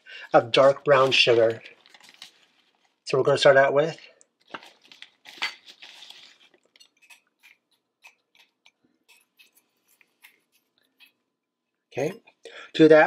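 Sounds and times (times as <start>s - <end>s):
sugar scooped into cup: 5.7s - 11.2s.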